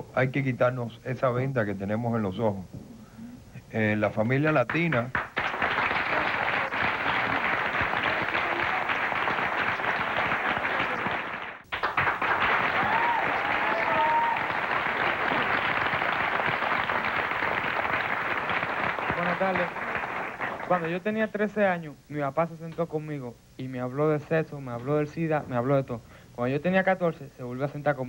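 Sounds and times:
audience applauding: 4.7s - 21.2s.

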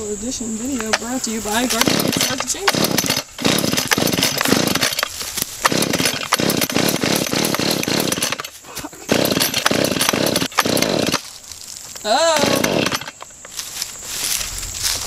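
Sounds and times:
chainsaw engine catching and dying: 0.8s - 11.3s, 11.9s - 13.5s.

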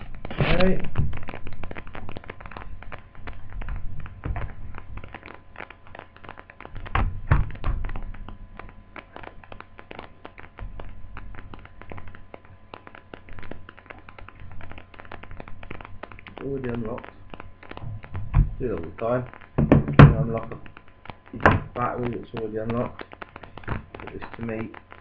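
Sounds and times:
louder thunks: 19.6s - 20.3s.

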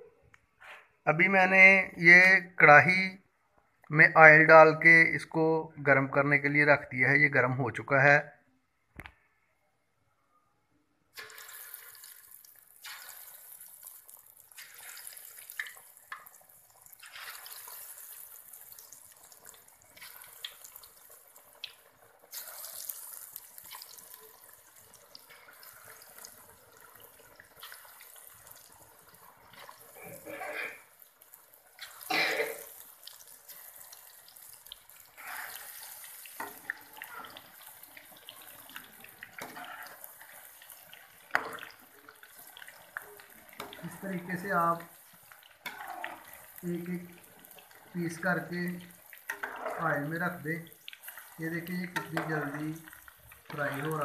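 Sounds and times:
meat sizzling in hot oil: 11.2s - 54.0s
oil crackling and spluttering: 11.2s - 54.0s.

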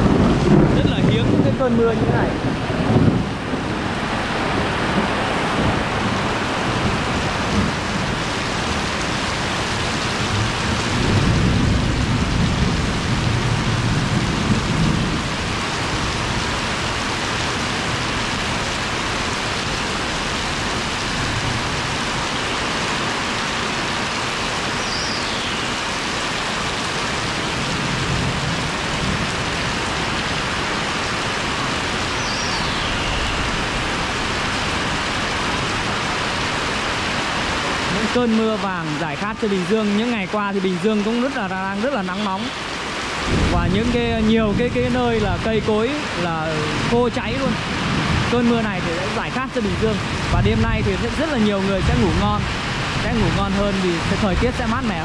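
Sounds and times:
low rumble of thunder: 0.0s - 22.2s, 27.1s - 30.6s, 43.2s - 45.7s, 46.6s - 55.0s
heavy rain pouring: 0.0s - 55.0s.

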